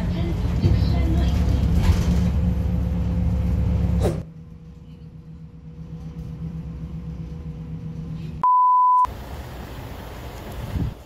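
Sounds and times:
bus engine humming: 0:00.0 - 0:08.4, 0:09.0 - 0:11.0.

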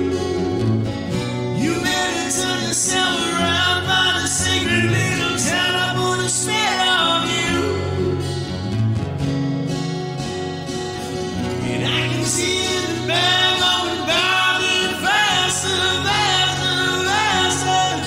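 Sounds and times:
acoustic guitar strumming: 0:00.0 - 0:18.0
man singing wordlessly: 0:01.4 - 0:08.2, 0:11.4 - 0:18.0.

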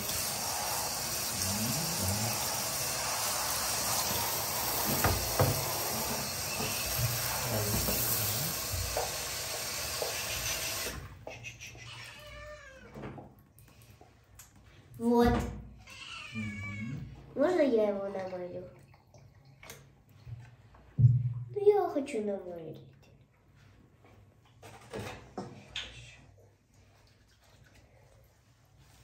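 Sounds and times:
shower spraying water: 0:00.0 - 0:11.9
kitten meowing: 0:11.7 - 0:12.9.

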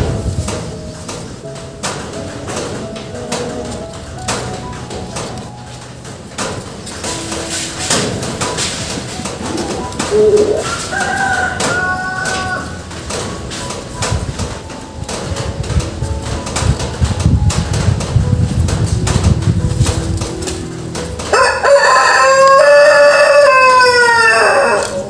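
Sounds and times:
birds calling: 0:00.7 - 0:13.9
low coos: 0:09.2 - 0:12.9.

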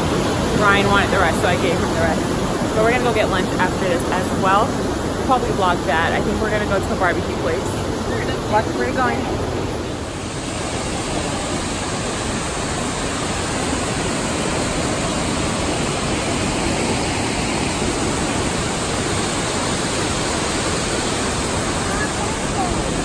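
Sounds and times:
waterfall rushing: 0:00.0 - 0:23.0.

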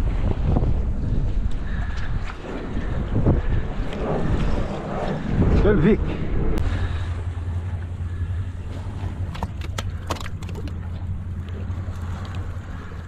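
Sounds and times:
wind on microphone: 0:00.0 - 0:10.0.

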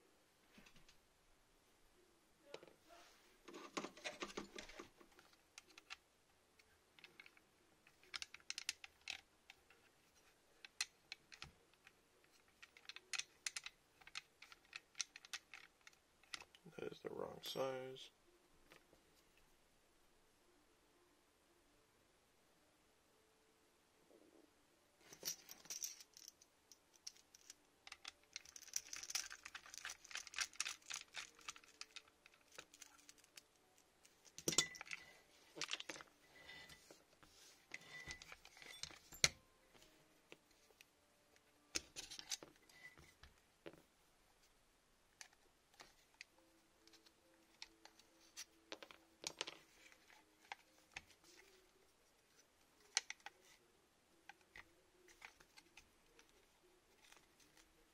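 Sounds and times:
small parts clicking and rattling: 0:03.5 - 0:06.0, 0:06.6 - 0:16.7, 0:25.0 - 0:37.0, 0:37.7 - 0:39.4, 0:41.7 - 0:43.8, 0:45.2 - 0:51.6, 0:52.2 - 0:53.6, 0:54.2 - 0:57.8.

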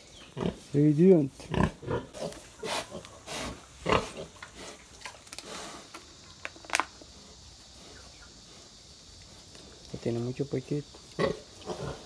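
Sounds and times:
pigs grunting: 0:01.4 - 0:05.9, 0:11.2 - 0:12.0.

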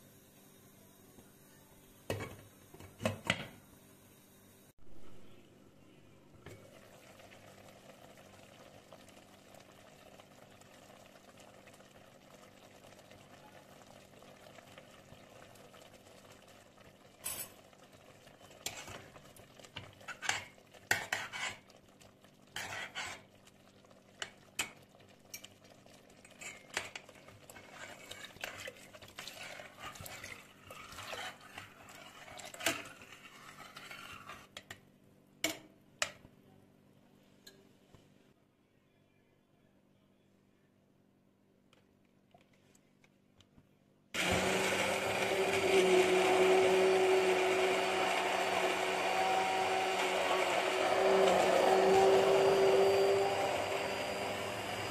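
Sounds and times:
metal ladle scraping a steel pot: 0:20.0 - 0:21.7, 0:22.6 - 0:23.3, 0:26.3 - 0:34.6.

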